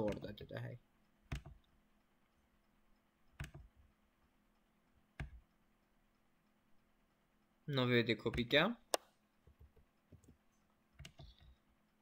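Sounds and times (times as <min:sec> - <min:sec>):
computer mouse clicking: 0:03.4 - 0:03.8, 0:11.0 - 0:11.6.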